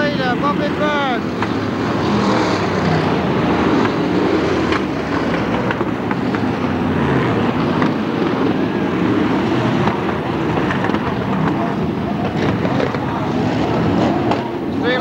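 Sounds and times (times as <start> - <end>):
stock car engines racing: 0.0 - 15.0.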